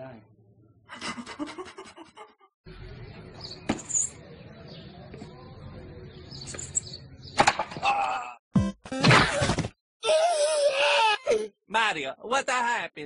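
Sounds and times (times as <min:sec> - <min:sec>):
high bird chirps: 0:02.9 - 0:07.4.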